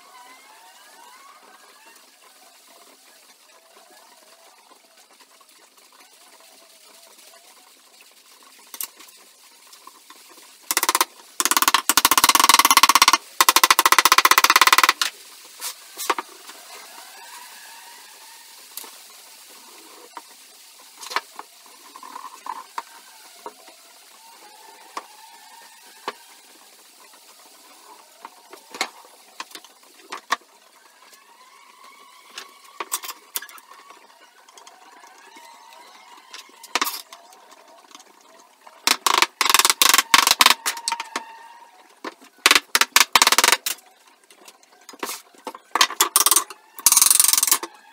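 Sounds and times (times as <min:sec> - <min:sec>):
wooden parts knocking: 0:10.7 - 0:15.1, 0:38.9 - 0:41.2, 0:42.4 - 0:43.7, 0:45.7 - 0:47.6.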